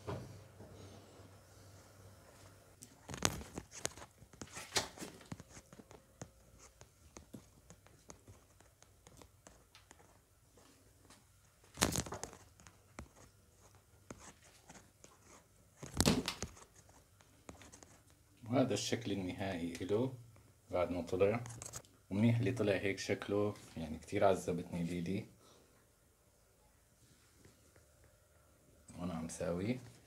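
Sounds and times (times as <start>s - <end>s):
handling rustling and scraping: 2.4s - 18.2s.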